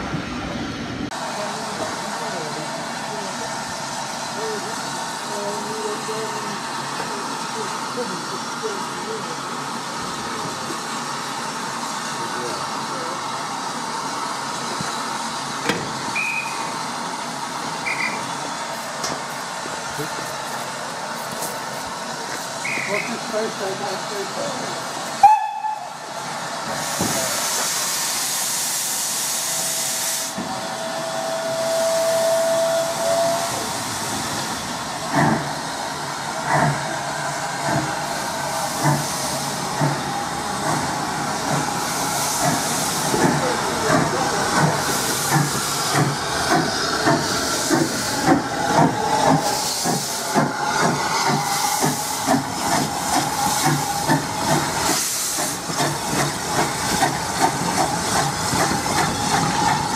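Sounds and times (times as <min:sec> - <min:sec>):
steam hissing: 0:01.1 - 0:59.9
train clanking: 0:01.4 - 0:29.0, 0:30.3 - 0:59.9
steam locomotive whistle: 0:16.2 - 0:16.6, 0:17.8 - 0:18.2, 0:25.2 - 0:26.0, 0:29.5 - 0:33.7.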